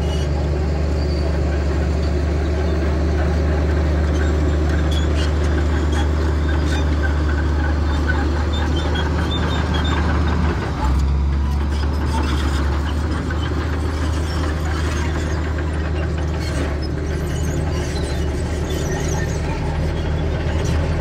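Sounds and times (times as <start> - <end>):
diesel engine running: 0.0 - 21.0.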